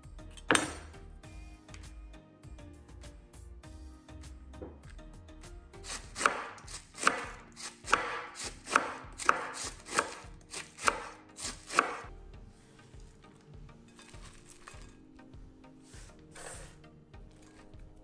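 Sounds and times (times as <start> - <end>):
knife knocking on wooden board: 4.6 - 4.8
knife slicing cabbage: 5.8 - 12.1, 14.1 - 14.9, 15.9 - 17.8.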